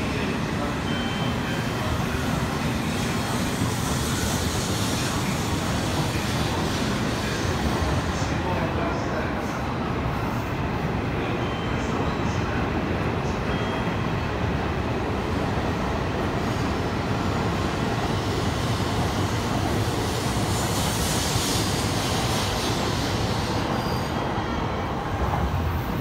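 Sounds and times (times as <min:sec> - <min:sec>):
train wheels rumbling: 0:00.0 - 0:09.1.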